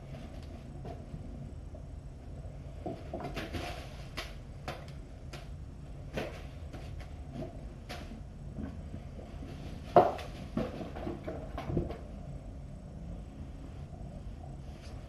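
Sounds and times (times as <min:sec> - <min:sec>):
low room hum: 0:00.0 - 0:15.0
wand toy rustling and tapping: 0:02.8 - 0:08.2.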